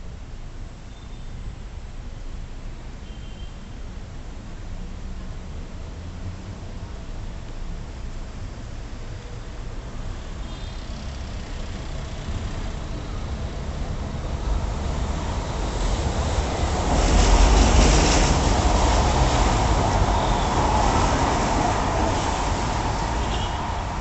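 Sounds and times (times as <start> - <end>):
street traffic: 0.0 - 24.0
elevated train rumbling past: 12.1 - 24.0.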